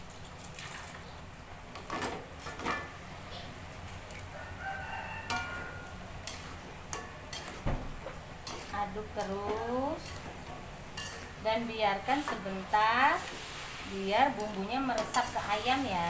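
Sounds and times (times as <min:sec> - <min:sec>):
frying hiss: 0:00.0 - 0:16.0
metal spatula scraping a wok: 0:05.2 - 0:16.0.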